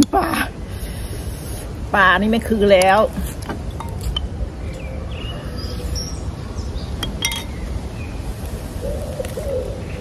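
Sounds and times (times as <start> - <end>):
tableware clicking: 7.0 - 7.5.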